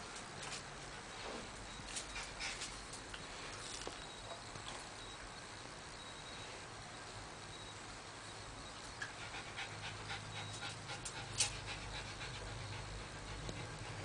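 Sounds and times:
dog panting: 9.0 - 14.0.

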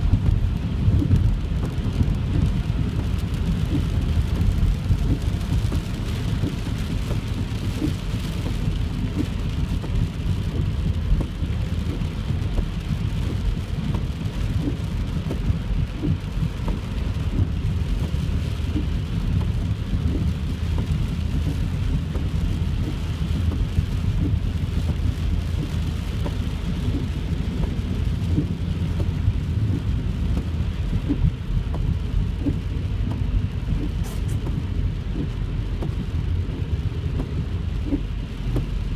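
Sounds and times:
heavy rain on car roof: 0.0 - 38.9
road and tyre rumble: 0.0 - 38.9.

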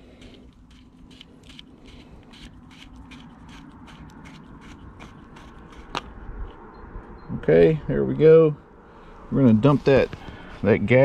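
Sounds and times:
light clicks and scrapes: 0.0 - 6.6.

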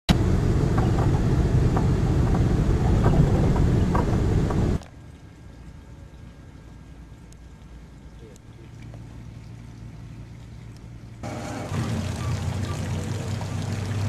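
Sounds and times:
car road and engine noise: 0.1 - 4.8.

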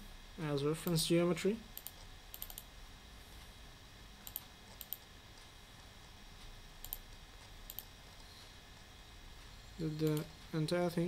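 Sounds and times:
computer mouse clicks: 1.8 - 2.7, 4.2 - 5.5, 6.8 - 8.3, 10.0 - 10.3.

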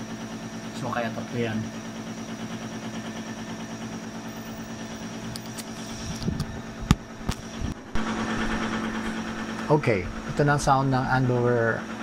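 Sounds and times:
air conditioner hum: 0.0 - 12.0.

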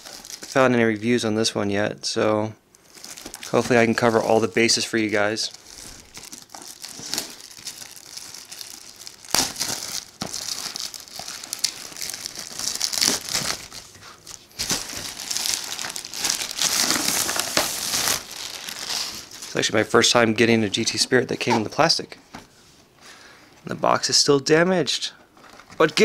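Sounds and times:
plastic shrink wrap crinkling: 0.0 - 0.8, 2.8 - 19.8.

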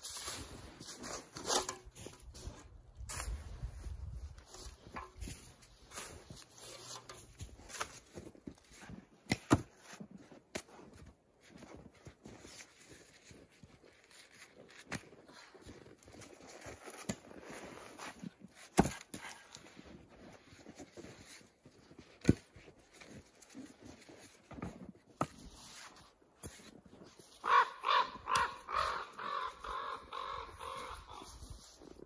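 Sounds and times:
crow cawing: 27.4 - 31.4.

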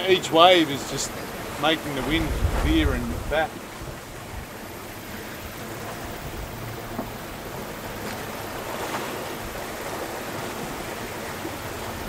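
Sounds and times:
sea waves breaking: 0.0 - 12.0
wind rushing: 1.8 - 3.5.

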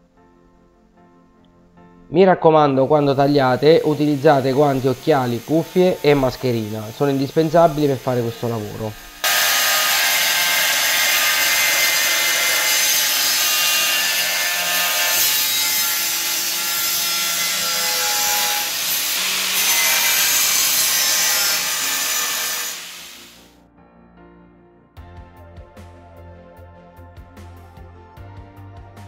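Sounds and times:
angle grinder cutting tile: 3.2 - 23.5.

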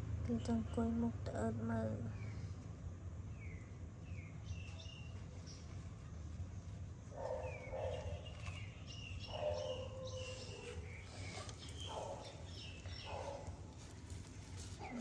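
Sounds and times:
high bird chirps: 7.2 - 13.5
animal calls: 7.2 - 13.8.

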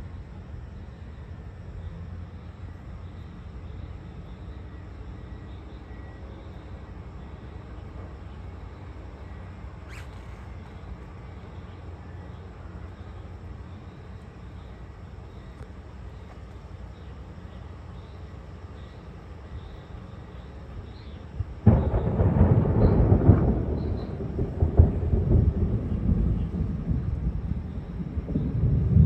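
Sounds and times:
thunder clap and rumble: 21.4 - 29.0.

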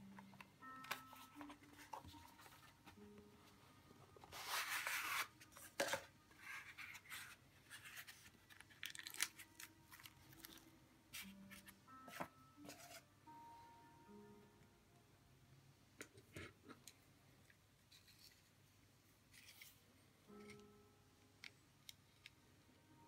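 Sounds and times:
box rustling open: 4.2 - 10.6.

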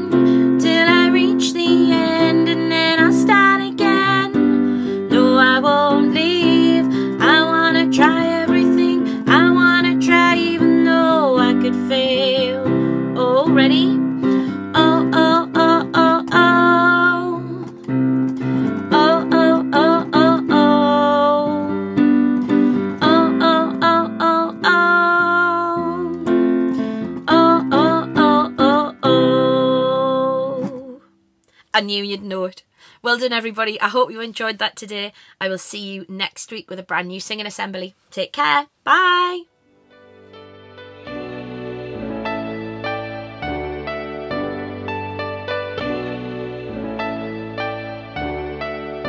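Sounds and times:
woman singing long notes: 0.0 - 17.7, 18.7 - 21.8, 22.8 - 26.4, 27.0 - 31.1
instrumental backing: 0.0 - 31.0, 39.6 - 49.0.

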